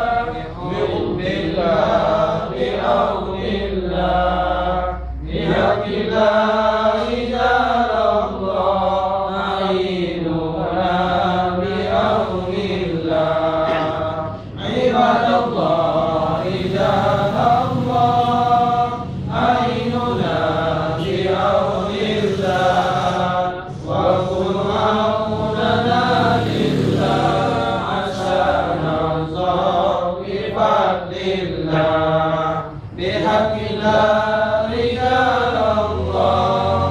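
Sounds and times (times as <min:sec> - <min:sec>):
group of men chanting: 0:00.0 - 0:36.9.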